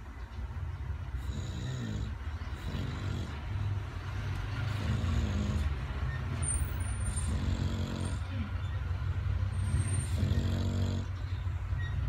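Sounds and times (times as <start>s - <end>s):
dog snoring: 1.2s - 3.7s, 4.6s - 8.3s, 9.6s - 11.2s.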